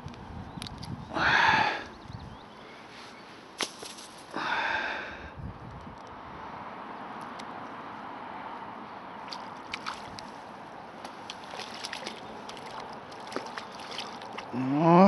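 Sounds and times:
fish splashing at surface: 9.3s - 10.2s, 11.0s - 14.5s.

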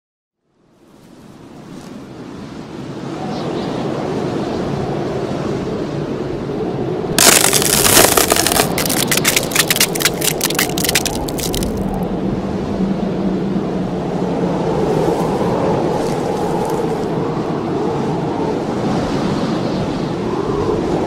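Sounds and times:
ice cracking: 7.2s - 12.0s, 16.0s - 17.1s.

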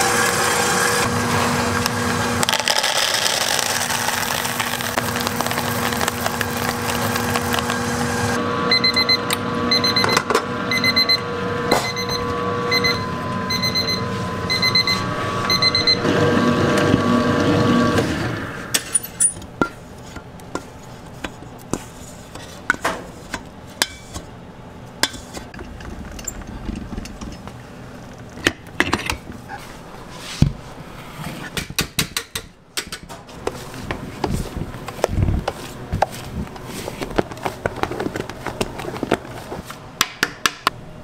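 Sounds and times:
stand mixer humming: 0.0s - 18.6s
electronic beeps: 11.8s - 16.0s.

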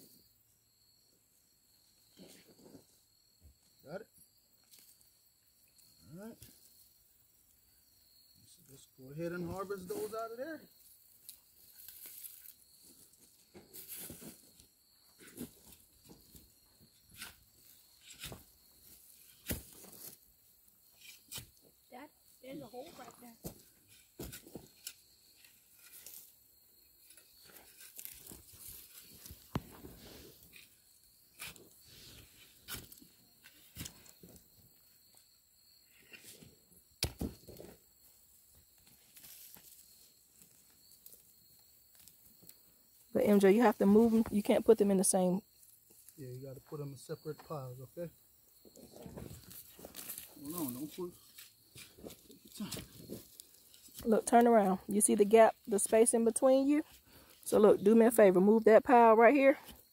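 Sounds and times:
soil scraping and crumbling: 11.2s - 20.3s, 22.4s - 34.5s, 48.7s - 58.3s.

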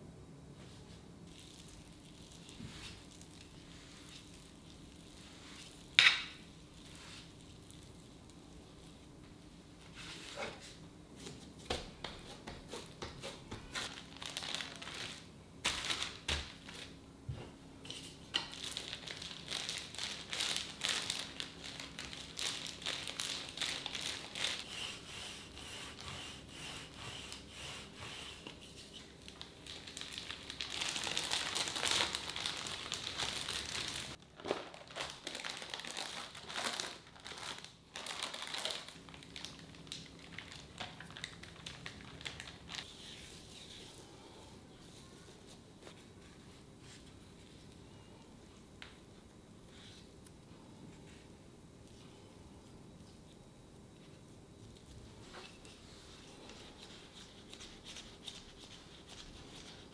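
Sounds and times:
crinkling and rustling: 0.6s - 24.7s, 28.7s - 43.8s.

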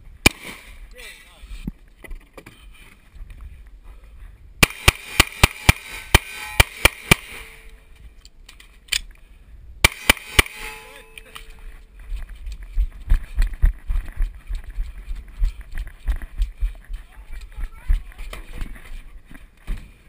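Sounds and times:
pistol shots: 0.2s - 0.7s, 4.6s - 7.7s, 9.8s - 10.9s.

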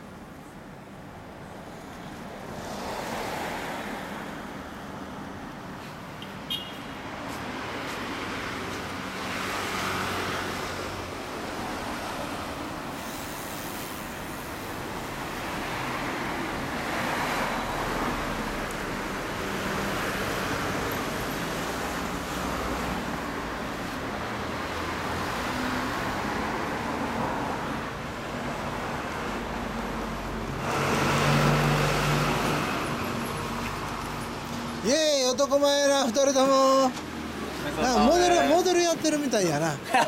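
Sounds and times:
road noise: 0.0s - 40.0s.

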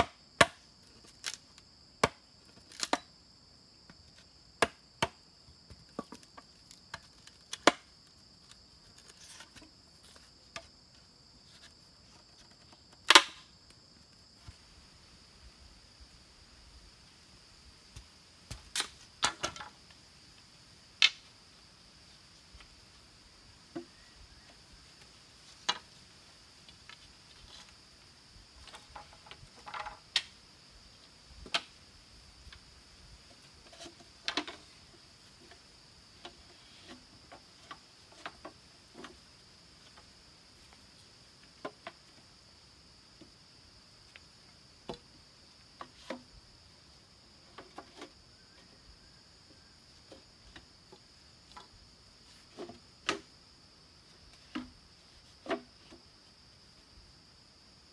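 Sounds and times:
machete chopping bamboo: 0.0s - 0.6s, 2.0s - 3.1s, 4.6s - 5.2s, 7.5s - 7.9s, 13.1s - 13.4s
faint high-pitched whine: 0.0s - 57.9s.

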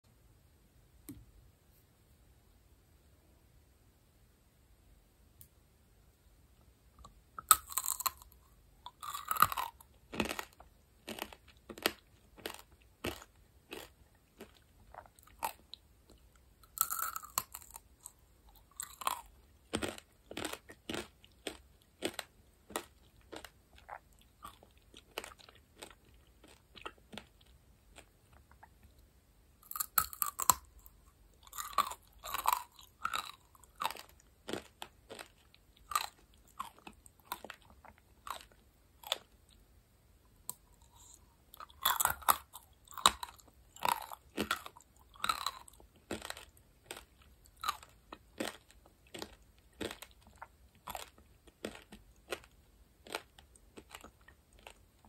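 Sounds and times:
crunching candy shell: 7.4s - 15.8s, 16.6s - 28.1s, 29.6s - 39.3s, 40.5s - 54.8s.

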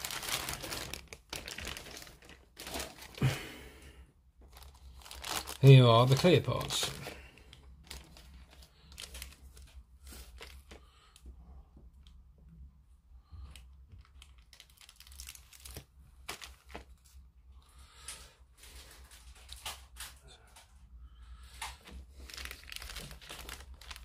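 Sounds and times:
plastic bag crinkling: 0.0s - 3.6s, 4.4s - 11.0s, 14.0s - 17.2s, 22.1s - 24.0s.

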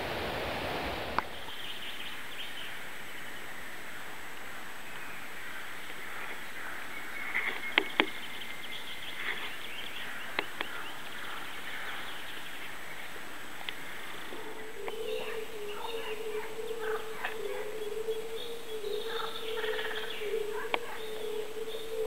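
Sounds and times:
birds chirping and singing: 4.9s - 22.0s.

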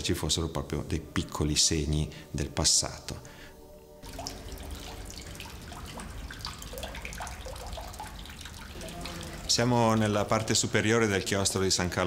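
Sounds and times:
water trickling and dripping: 4.0s - 12.0s.

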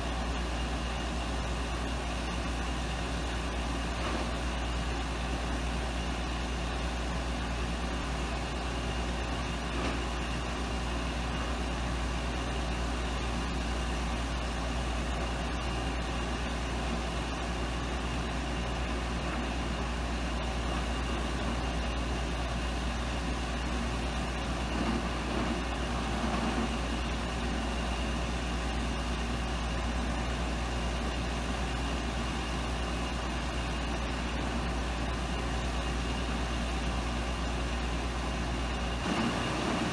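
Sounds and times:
truck engine idling: 0.0s - 39.9s.

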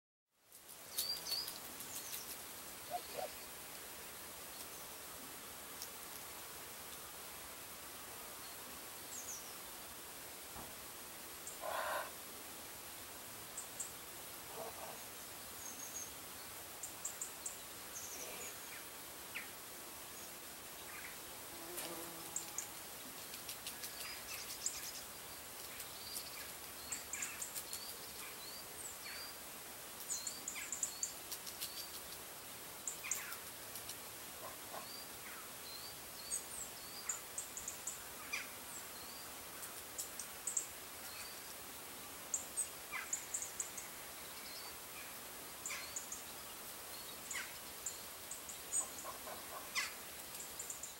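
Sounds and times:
steady background hiss: 0.4s - 50.9s
small birds chirping: 0.9s - 3.6s, 22.4s - 29.4s, 30.0s - 41.6s, 42.3s - 50.9s.

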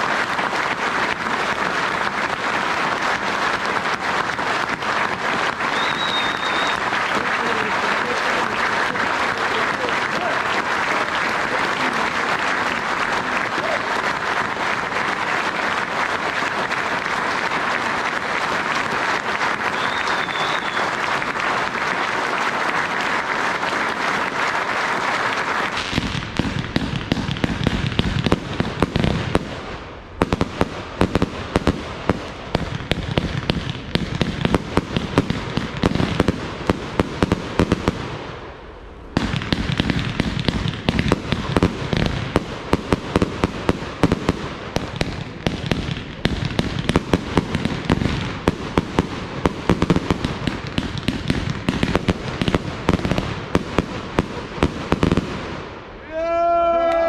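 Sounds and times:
crowd applauding: 0.0s - 27.7s, 56.2s - 57.0s
fireworks crackling and popping: 0.0s - 56.2s.

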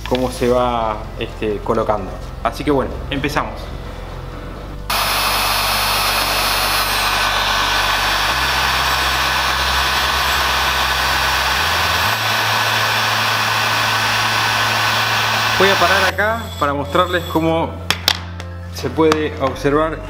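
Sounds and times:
heat gun blowing air: 4.9s - 17.3s.

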